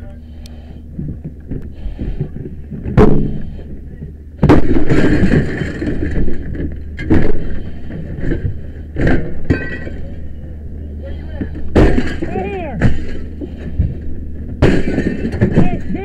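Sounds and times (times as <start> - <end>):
heavy impacts and crashes: 1.0 - 10.4, 11.3 - 16.0
clattering: 4.4 - 10.3, 11.4 - 16.0.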